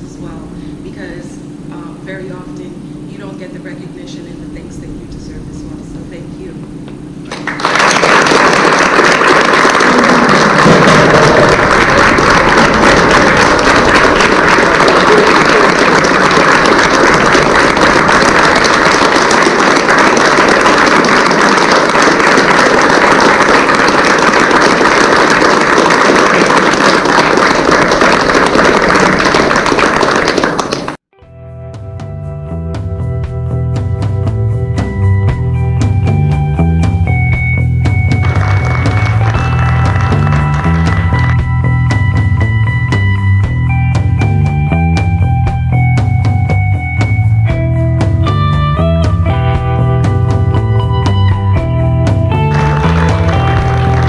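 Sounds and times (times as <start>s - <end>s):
audience applauding: 7.2s - 31.0s, 38.1s - 42.0s, 52.3s - 54.0s.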